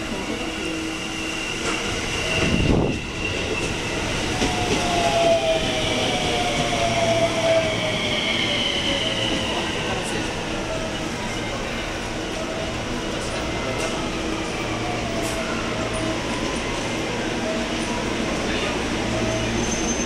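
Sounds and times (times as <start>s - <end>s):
train rumble and rush of air: 0.0s - 20.0s.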